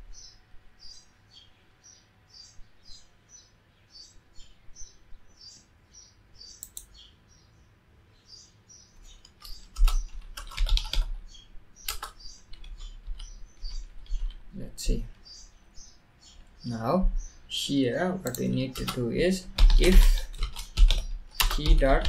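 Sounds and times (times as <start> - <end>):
typing on keyboard: 9.2 - 11.2, 11.8 - 14.5, 18.2 - 22.0.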